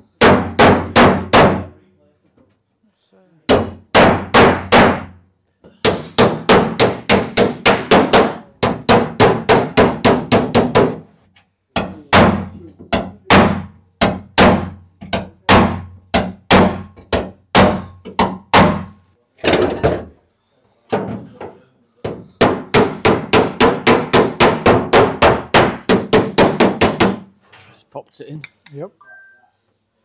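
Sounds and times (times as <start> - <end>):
hammer striking steel bar: 11.8 - 18.9.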